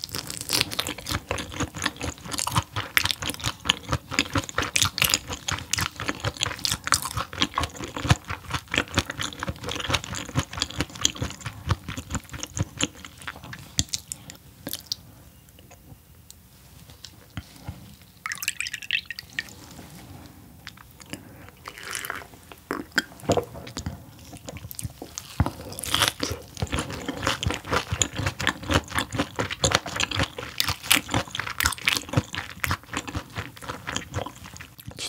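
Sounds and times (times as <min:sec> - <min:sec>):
crunchy chewing: 0:00.0 - 0:15.8, 0:20.6 - 0:35.0
liquid poured into cup: 0:18.2 - 0:19.5.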